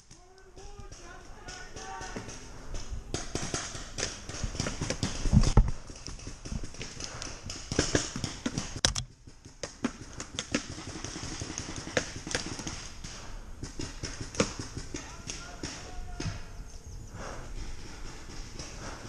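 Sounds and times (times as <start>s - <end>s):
sharp close cracks: 0.0s - 16.5s.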